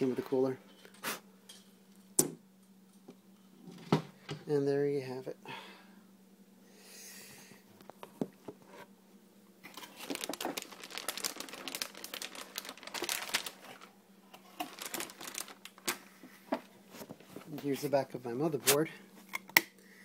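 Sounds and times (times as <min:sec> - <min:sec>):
faint steady hum: 0:00.0 - 0:20.0
plastic packaging crinkling: 0:09.6 - 0:16.2.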